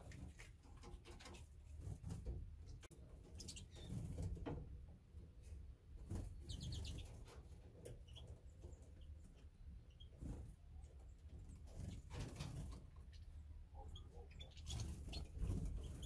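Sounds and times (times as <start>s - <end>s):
finches chirping: 6.5s - 7.2s, 13.0s - 16.0s.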